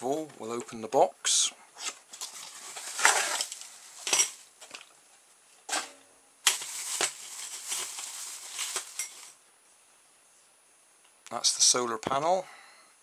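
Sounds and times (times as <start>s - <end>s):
plastic bag crinkling: 2.1s - 4.9s, 5.7s - 9.4s.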